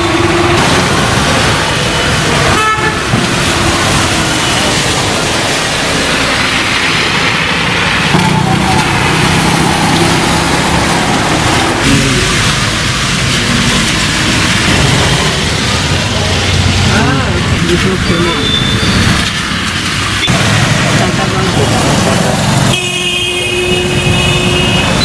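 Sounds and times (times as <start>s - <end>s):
tyres hissing on wet road: 0.0s - 25.0s
vehicle horn tooting: 2.5s - 3.1s, 22.7s - 25.0s.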